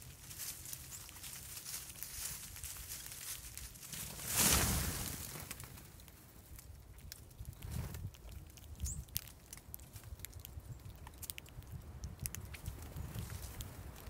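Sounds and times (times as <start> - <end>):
birds pecking seed: 0.0 - 14.0
wings fluttering: 0.6 - 6.2.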